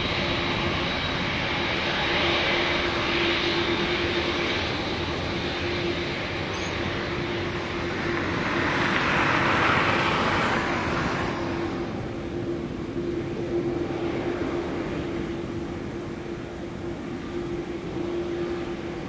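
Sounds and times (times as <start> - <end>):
jet engines roaring: 0.0 - 19.0.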